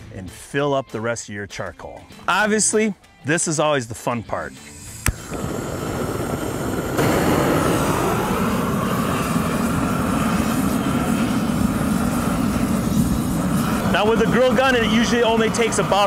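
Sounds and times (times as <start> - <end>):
propane torch flame rushing: 4.6 - 16.0.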